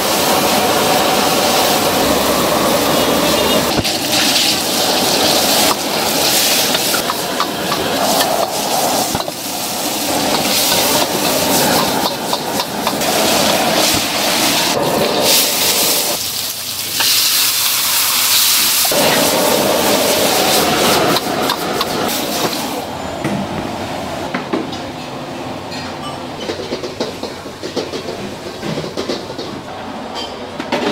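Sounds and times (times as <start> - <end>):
food sizzling in a wok: 0.0 - 22.8
sharp steam hiss: 0.0 - 22.8.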